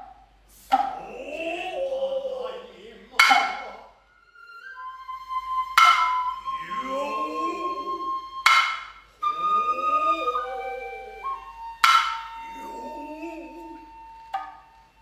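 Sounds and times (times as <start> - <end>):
bamboo flute high notes: 0.7 - 15.0
drummers' gliding calls: 0.7 - 15.0
hand drum strokes: 3.1 - 3.8, 5.8 - 9.0, 11.8 - 14.6.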